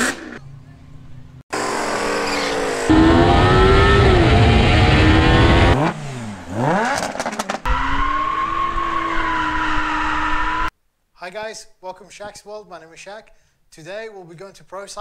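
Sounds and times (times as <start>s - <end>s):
performance engines revving: 1.6s - 10.7s
exhaust cracks: 2.1s - 10.6s.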